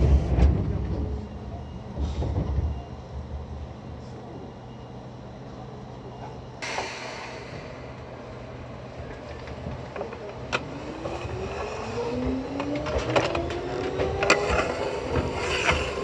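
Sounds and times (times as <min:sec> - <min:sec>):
train motor whine rising: 0:06.6 - 0:16.0.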